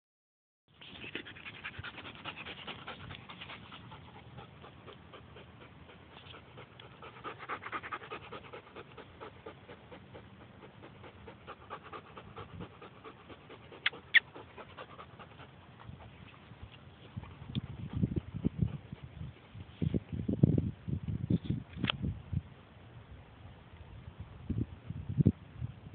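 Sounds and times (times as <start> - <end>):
dog panting: 0.8 - 19.4.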